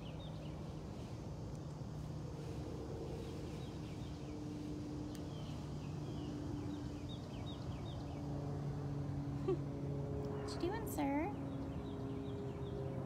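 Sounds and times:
bird chirping: 0:00.0 - 0:00.8, 0:03.2 - 0:08.4
steady low hum: 0:00.0 - 0:13.0.

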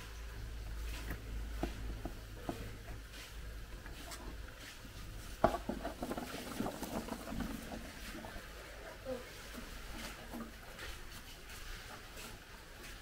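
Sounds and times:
vegetables pattering into a basin: 0:05.4 - 0:08.4.

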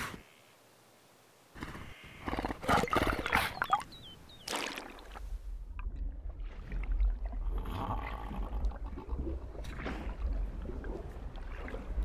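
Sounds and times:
low rumble of moving water: 0:02.8 - 0:12.0.

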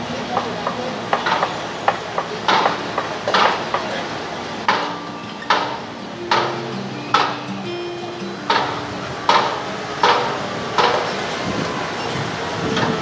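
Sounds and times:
ringing metal strikes: 0:04.7 - 0:11.3.

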